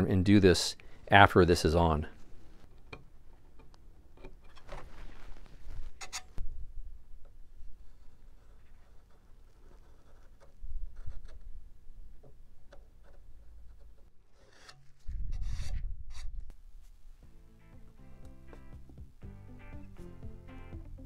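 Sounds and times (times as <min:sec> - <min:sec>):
rubbing and handling: 0:04.3 - 0:06.4, 0:07.6 - 0:17.2
scratchy marking on wood: 0:07.8 - 0:11.6, 0:12.7 - 0:16.3.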